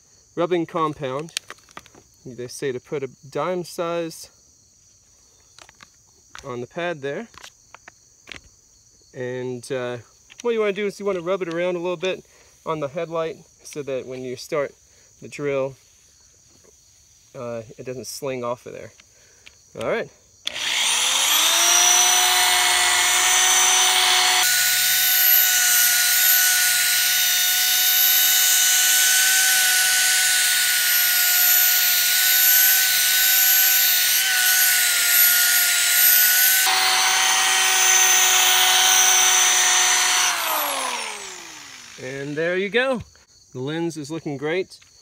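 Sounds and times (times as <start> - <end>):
power drill motor whine: 20.4 - 43.0.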